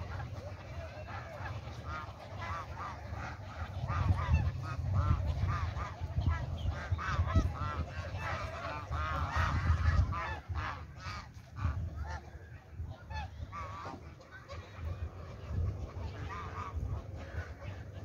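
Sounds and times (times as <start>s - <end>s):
geese honking: 0.0s - 18.0s.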